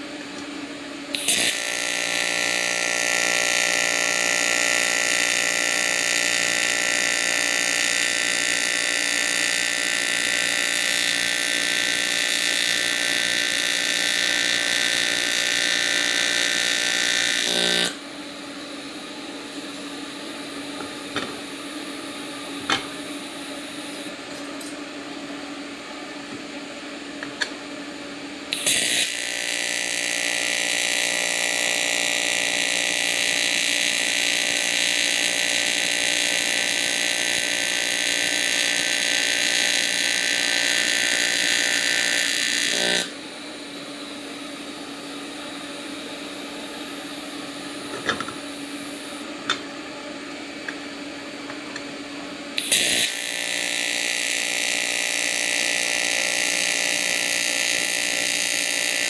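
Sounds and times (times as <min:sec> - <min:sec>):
welder humming quietly: 0:00.0 - 0:59.0
welding arc striking crackle: 0:01.1 - 0:18.0, 0:28.5 - 0:43.1, 0:52.6 - 0:59.0
welding arc buzzing: 0:01.1 - 0:24.8, 0:28.5 - 0:49.8, 0:52.6 - 0:59.0.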